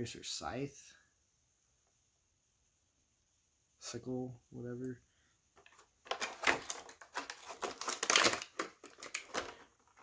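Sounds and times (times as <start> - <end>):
plastic packaging crinkling: 5.6 - 10.0.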